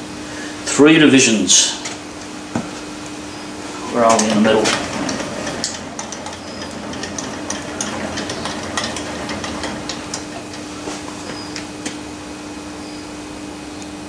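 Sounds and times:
steady low hum: 0:00.0 - 0:14.0
lathe carriage clicks and ticks: 0:03.9 - 0:12.0.

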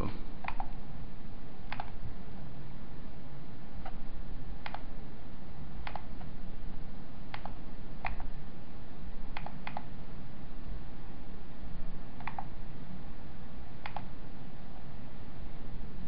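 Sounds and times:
low background hum: 0:00.0 - 0:16.0
computer mouse clicking: 0:00.4 - 0:00.8, 0:01.6 - 0:02.0, 0:03.8 - 0:04.0, 0:04.6 - 0:04.9, 0:05.8 - 0:06.4, 0:07.3 - 0:08.3, 0:09.3 - 0:09.9, 0:12.2 - 0:12.6, 0:13.8 - 0:14.1.

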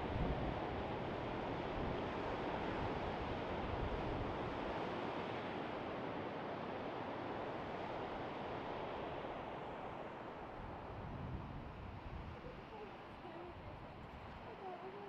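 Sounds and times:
sea surf on sandy beach: 0:00.0 - 0:15.0
wind buffeting microphone: 0:10.7 - 0:14.6.

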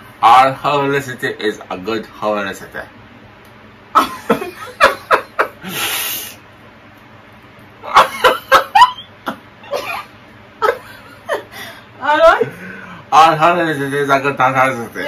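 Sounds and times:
people laughing: 0:04.0 - 0:05.7.

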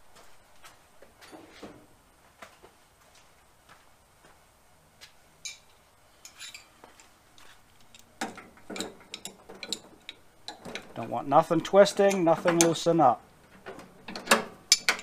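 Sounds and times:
wrenches clinking on metal fitting: 0:07.8 - 0:12.9, 0:14.1 - 0:15.0.

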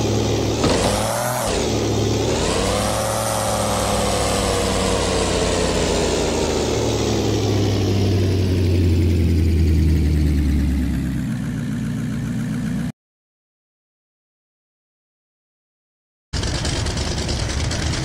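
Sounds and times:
vehicle engine revs falling: 0:00.0 - 0:11.2.

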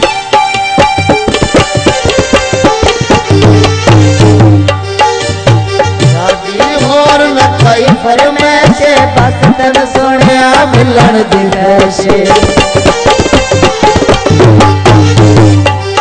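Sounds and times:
wavering melody instrument: 0:00.0 - 0:07.6
tabla rhythm: 0:00.0 - 0:16.0.

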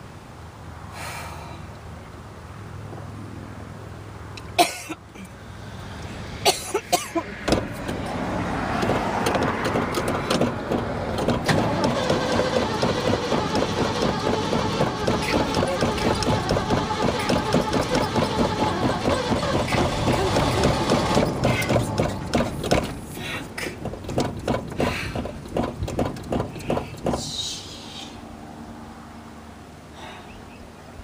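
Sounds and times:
starter cranking engine: 0:08.7 - 0:27.4.

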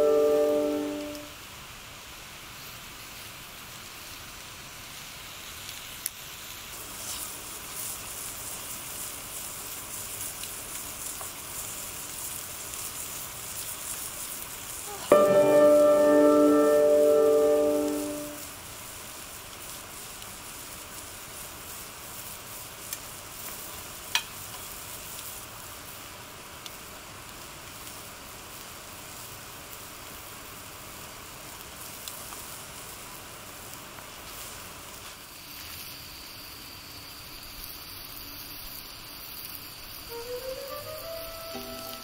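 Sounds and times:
thin high tone: 0:00.0 - 0:01.3, 0:14.9 - 0:18.5, 0:40.1 - 0:42.0
wood fire hissing: 0:00.0 - 0:42.0
fire pops: 0:05.5 - 0:17.0.

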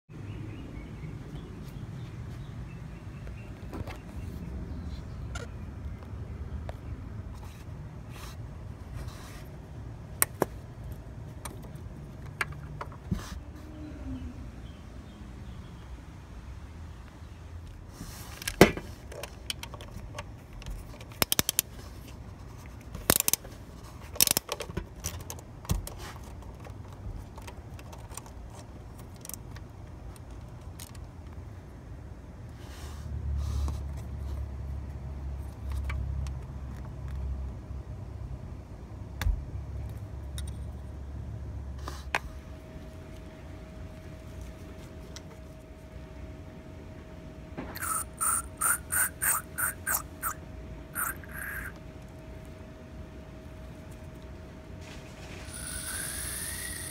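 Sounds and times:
handling and rubbing noises: 0:07.2 - 0:09.7, 0:11.3 - 0:13.8, 0:17.8 - 0:30.7
ratchet clicking: 0:55.5 - 0:56.9.

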